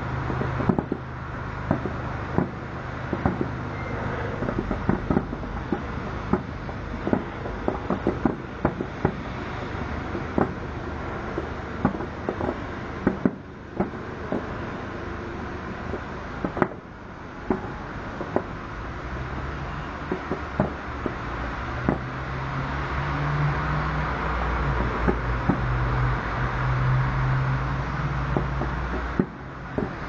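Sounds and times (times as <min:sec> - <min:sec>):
steady low rumble: 0:00.0 - 0:22.0
fireworks bangs: 0:00.0 - 0:22.2, 0:24.6 - 0:25.7, 0:28.2 - 0:30.0.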